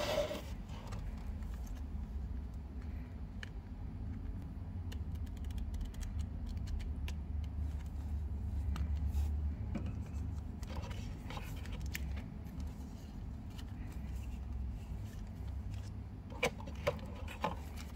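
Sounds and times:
steady low hum: 0.0s - 17.9s.

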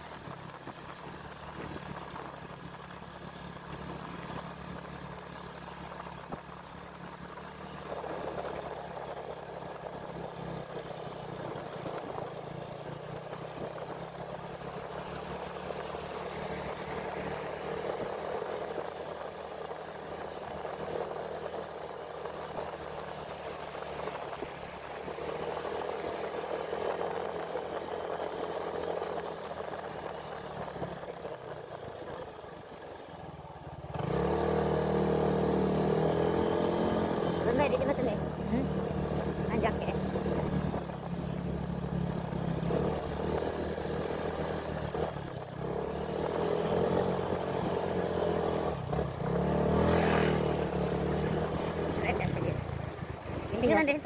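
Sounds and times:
rushing wind or road noise: 0.0s - 54.0s
vehicle engine running: 0.0s - 54.0s.

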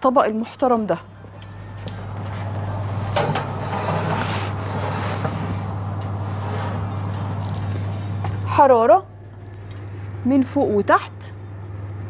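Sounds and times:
oven rushing noise: 0.3s - 12.0s.

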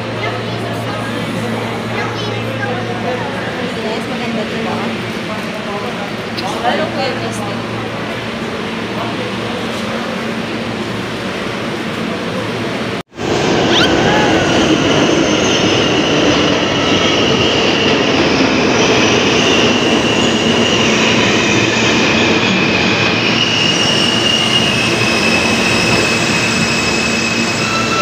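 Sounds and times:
subway train wheels rumbling on rail: 0.0s - 28.0s
high-pitched wheel squeal: 13.6s - 14.8s, 23.2s - 28.0s.

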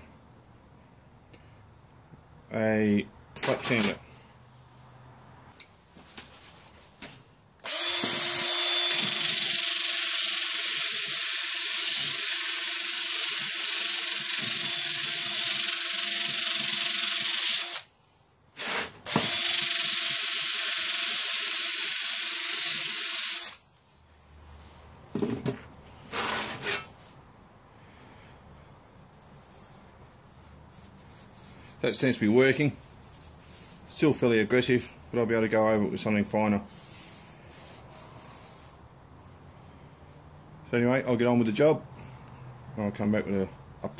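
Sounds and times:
drill motor whine: 7.6s - 17.9s, 18.6s - 23.6s.

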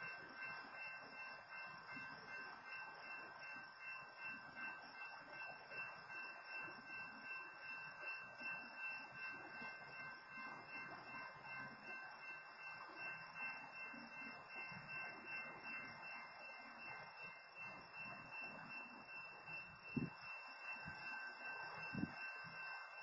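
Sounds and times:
railroad crossing bell ringing: 0.0s - 23.0s.

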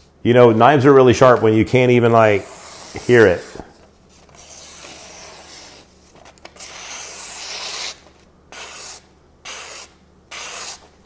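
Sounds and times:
knife slicing through paper: 4.2s - 5.9s, 8.6s - 10.9s.

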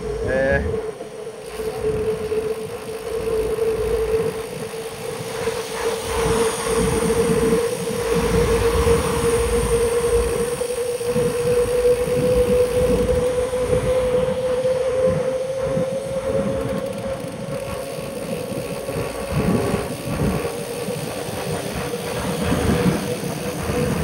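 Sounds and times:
steady whine: 0.0s - 24.0s
wind on microphone: 0.0s - 24.0s
bicycle tyre hiss on wet road: 3.6s - 13.0s.

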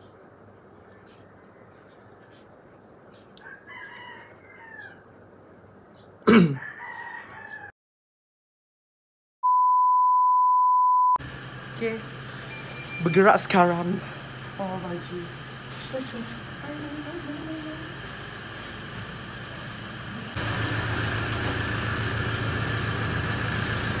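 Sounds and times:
rooster crowing: 3.4s - 5.1s, 6.6s - 7.8s
steady beep tone: 9.4s - 11.2s, 12.5s - 13.4s.

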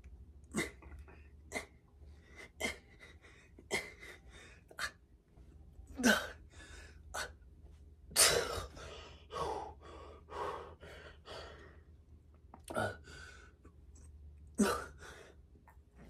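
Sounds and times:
man breathing hard: 1.4s - 5.0s, 6.1s - 7.4s, 8.2s - 12.0s, 12.7s - 13.7s, 14.6s - 15.5s.

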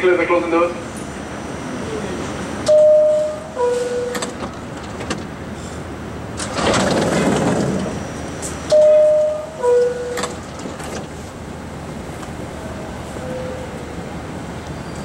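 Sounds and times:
two-note door chime: 2.7s - 4.2s, 8.7s - 10.2s.

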